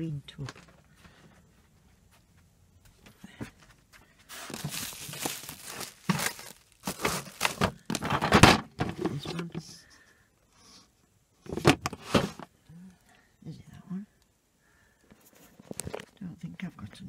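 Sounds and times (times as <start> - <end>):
plastic bags rustling: 4.2 - 9.3.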